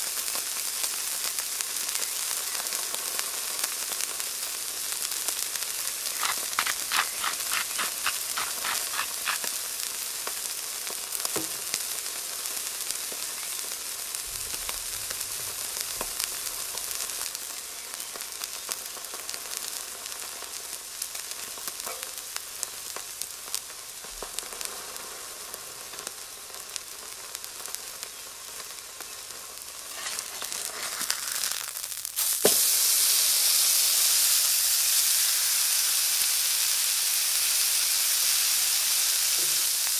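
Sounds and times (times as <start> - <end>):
steak sizzling on a griddle: 0.0 - 39.9
sharp scrape: 6.2 - 9.6, 29.8 - 31.6.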